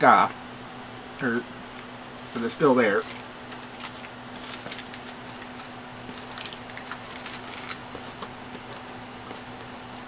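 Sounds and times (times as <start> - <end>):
plastic bag crinkling: 2.9 - 8.9.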